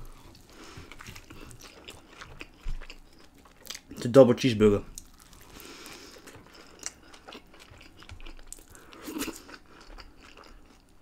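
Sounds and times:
chewing close to microphone: 0:00.0 - 0:04.0, 0:05.0 - 0:10.9
biting into a burger: 0:05.0 - 0:10.9.

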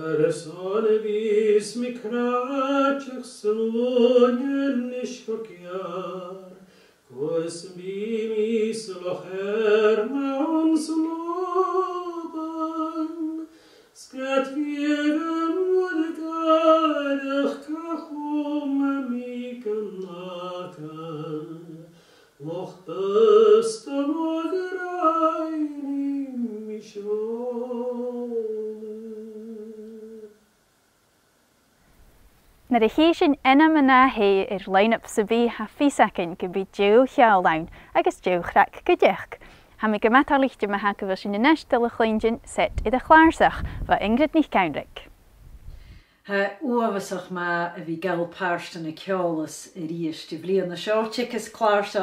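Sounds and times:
man singing unaccompanied: 0:00.0 - 0:30.4.

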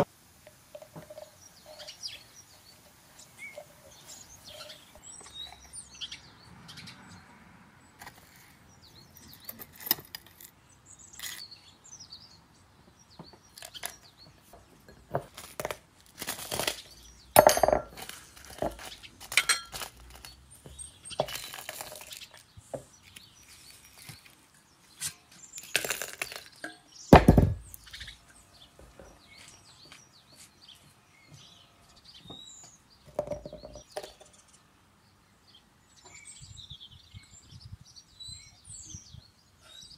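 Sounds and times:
birds chirping faintly: 0:00.0 - 0:39.9
items set on wooden board: 0:13.2 - 0:23.2, 0:25.0 - 0:27.8, 0:33.1 - 0:34.2
kitchenware clinking: 0:17.4 - 0:20.3.

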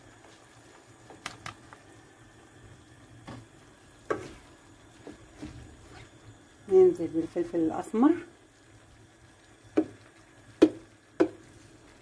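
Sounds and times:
faint sizzle: 0:00.0 - 0:12.0
spatula knocking against pan: 0:10.6 - 0:11.4.

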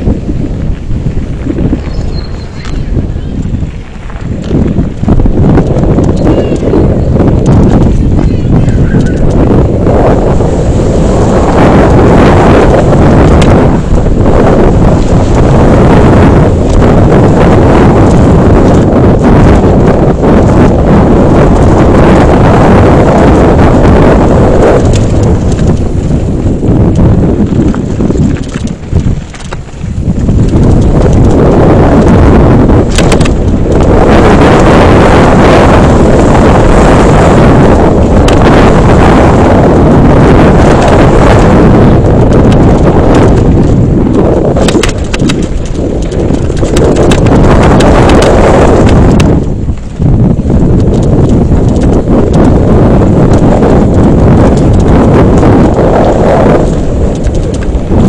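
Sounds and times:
bike rattling over gravel: 0:00.0 - 0:58.0
wind buffeting microphone: 0:00.0 - 0:58.0
bike clattering over stones: 0:24.8 - 0:31.4, 0:32.8 - 0:33.9, 0:44.6 - 0:49.9.

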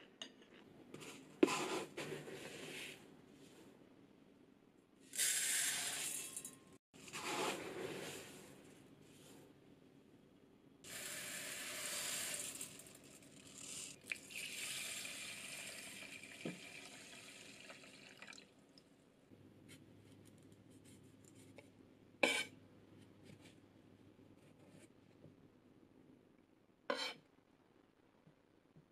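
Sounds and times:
water pouring onto rice: 0:14.0 - 0:18.5.

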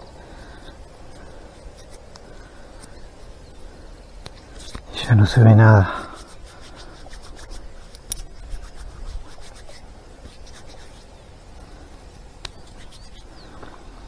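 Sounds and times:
fingers scraping soil off coin: 0:05.4 - 0:11.1, 0:12.5 - 0:13.2.

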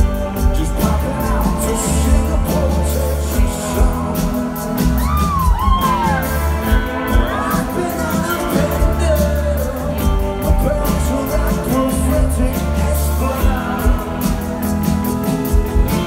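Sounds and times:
live rock band: 0:00.0 - 0:16.0
person singing: 0:00.0 - 0:16.0
audience shouts: 0:05.0 - 0:06.5.

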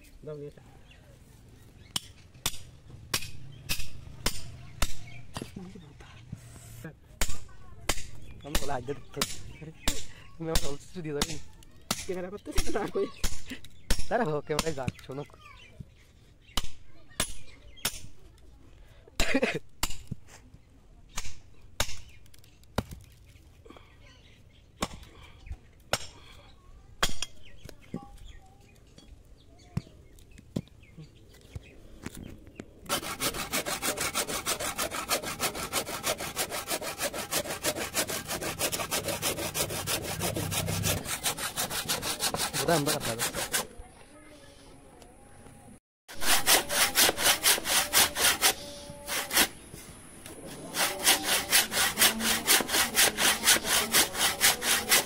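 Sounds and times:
hatchet chopping wood: 0:01.9 - 0:05.6, 0:07.2 - 0:15.0, 0:16.6 - 0:18.1, 0:19.8 - 0:20.2, 0:21.1 - 0:23.1, 0:24.8 - 0:25.1, 0:25.8 - 0:26.2, 0:32.8 - 0:43.7, 0:50.8 - 0:55.0
handsaw sawing wood: 0:32.9 - 0:43.7, 0:46.1 - 0:49.6, 0:50.4 - 0:55.0.

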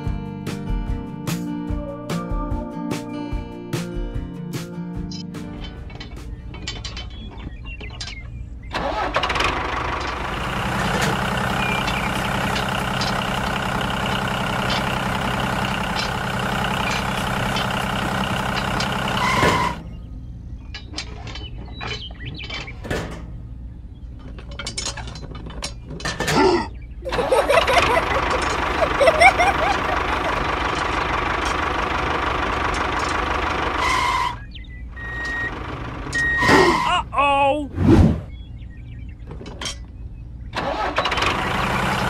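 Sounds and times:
toy tractor engine running: 0:08.8 - 0:19.8, 0:27.1 - 0:34.4, 0:35.0 - 0:36.4.

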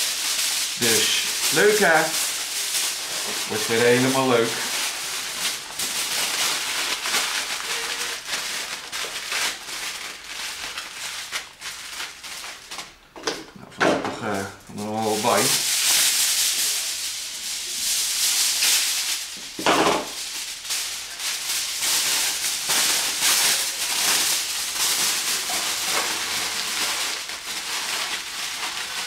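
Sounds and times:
aluminium foil crinkling: 0:00.0 - 0:13.1, 0:14.3 - 0:29.0.

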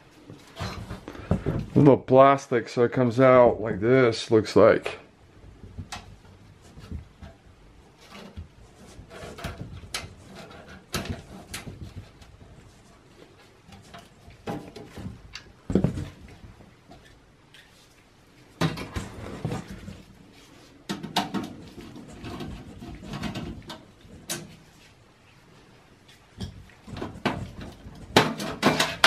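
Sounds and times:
computer case handling clicks and knocks: 0:09.2 - 0:12.4, 0:13.7 - 0:16.3, 0:20.9 - 0:24.5, 0:26.4 - 0:29.0.

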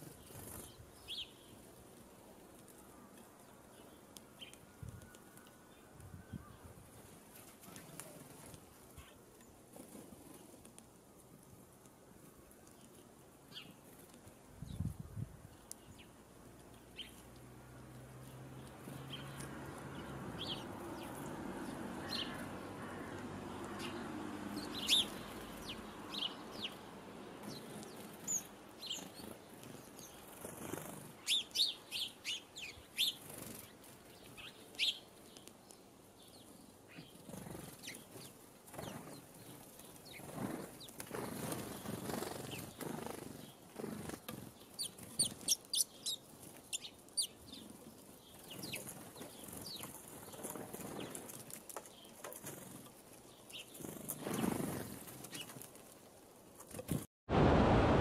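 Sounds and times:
wings fluttering: 0:00.0 - 0:00.9, 0:27.4 - 0:31.7, 0:32.9 - 0:35.5, 0:36.9 - 0:57.1.

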